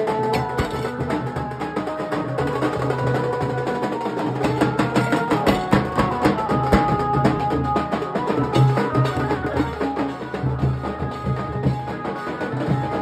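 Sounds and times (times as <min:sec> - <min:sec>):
dhol drums drumming fast: 0:00.0 - 0:13.0.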